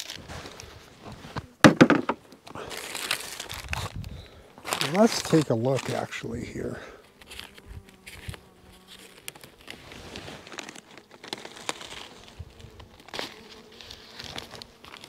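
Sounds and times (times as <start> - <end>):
newspaper crinkling: 0.0 - 0.7, 2.6 - 6.3, 7.2 - 15.0
bees buzzing: 4.2 - 15.0.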